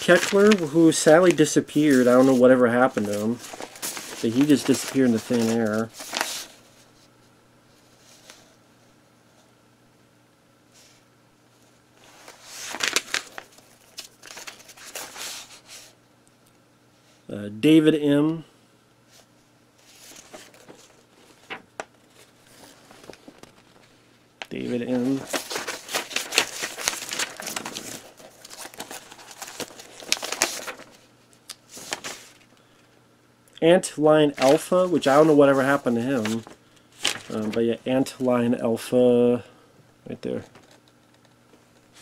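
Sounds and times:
paper rustling and crinkling: 0:00.0 - 0:07.1, 0:12.0 - 0:16.0, 0:19.8 - 0:32.8, 0:34.3 - 0:38.5, 0:40.3 - 0:42.0.

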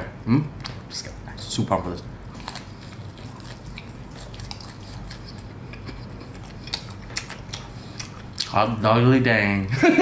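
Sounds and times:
person chewing crispy chicken: 0:02.3 - 0:08.6.

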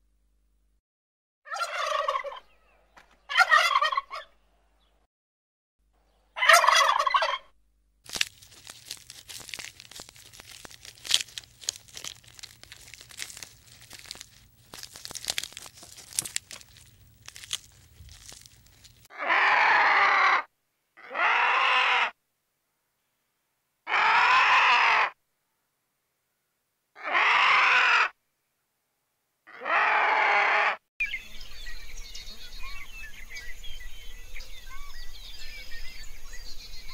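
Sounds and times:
turkey gobbling: 0:01.5 - 0:02.6, 0:03.3 - 0:04.4, 0:06.4 - 0:07.5
leaves and twigs crunching: 0:08.0 - 0:19.1.

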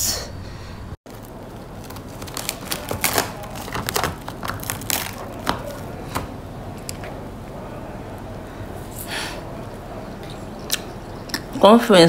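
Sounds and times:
plastic wrapping crinkling: 0:01.1 - 0:06.3.

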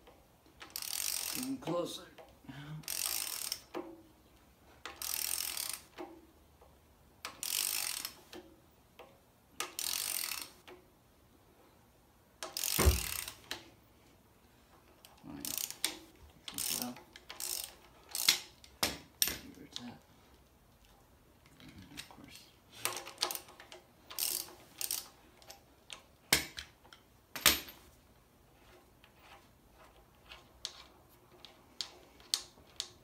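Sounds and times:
ratchet wrench clicking: 0:00.5 - 0:01.5, 0:02.8 - 0:03.8, 0:04.8 - 0:06.1, 0:07.2 - 0:08.4, 0:09.6 - 0:10.7, 0:12.4 - 0:13.7, 0:15.0 - 0:19.4, 0:22.8 - 0:27.0.

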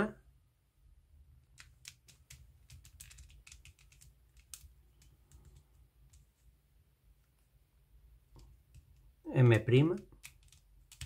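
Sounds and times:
plastic puzzle cube clicking: 0:01.4 - 0:06.3, 0:08.4 - 0:09.2, 0:10.0 - 0:11.0.

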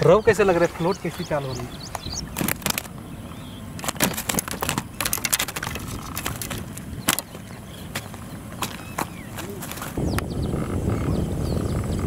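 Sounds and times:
fish handling clicks and knocks: 0:01.9 - 0:03.1, 0:03.7 - 0:10.0.

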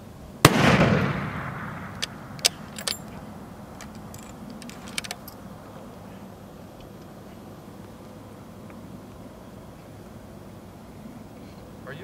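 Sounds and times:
rifle shot: 0:00.4 - 0:02.8.

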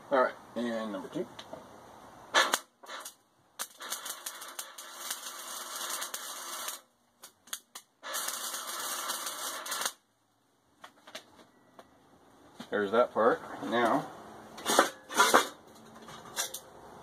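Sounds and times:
welding arc crackling: 0:02.3 - 0:10.1.

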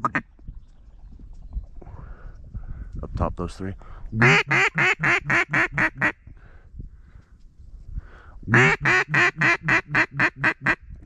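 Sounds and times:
duck call quacking: 0:00.0 - 0:00.2, 0:04.2 - 0:06.2, 0:08.5 - 0:10.8.

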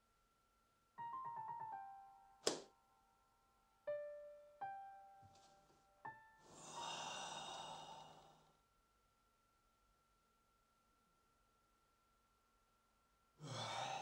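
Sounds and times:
slow piano notes: 0:01.0 - 0:03.2, 0:03.8 - 0:08.3
man sighing heavily: 0:06.5 - 0:08.4, 0:13.4 - 0:14.0.

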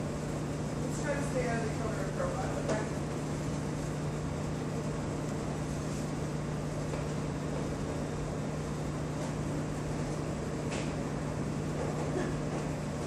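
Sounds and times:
pottery wheel humming: 0:00.0 - 0:13.0.

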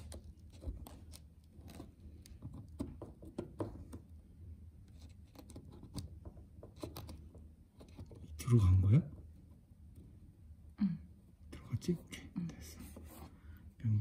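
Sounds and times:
small scratches and clicks: 0:00.0 - 0:04.1, 0:04.8 - 0:08.6.

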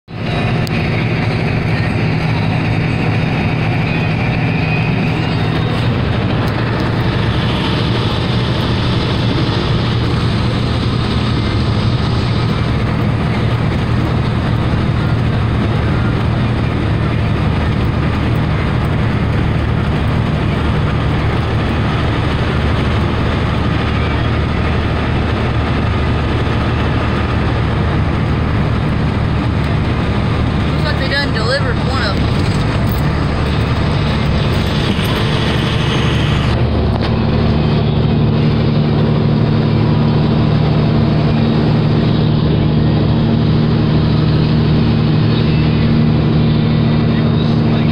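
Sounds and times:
truck engine droning: 0:00.0 - 0:47.9
tyre and road noise: 0:00.0 - 0:47.9.

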